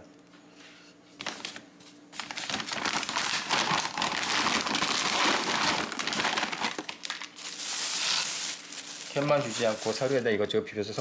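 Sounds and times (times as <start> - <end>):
plastic bag of kibble crinkling: 2.2 - 10.4.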